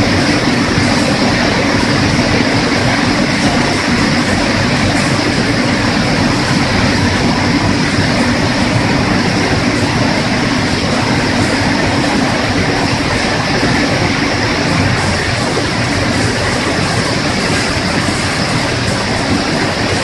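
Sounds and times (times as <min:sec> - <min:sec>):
conveyor motors running: 0:00.0 - 0:20.0
water churning in washing tank: 0:00.0 - 0:20.0.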